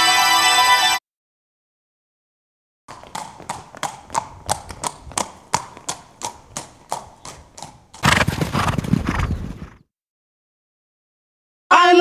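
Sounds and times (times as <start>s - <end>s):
horse hooves clip-clopping: 2.9s - 9.8s.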